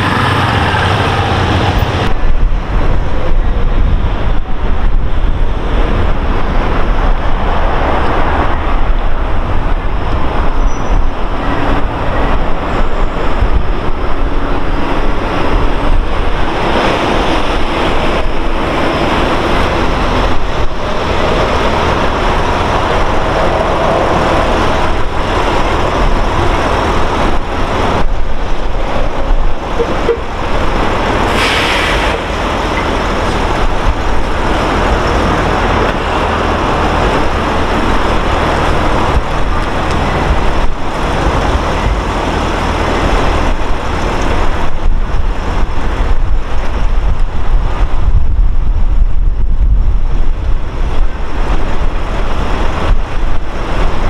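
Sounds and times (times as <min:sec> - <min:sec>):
bus pulling away: 0:00.0 - 0:54.0
road traffic noise: 0:00.0 - 0:54.0
short hiss: 0:31.3 - 0:32.4.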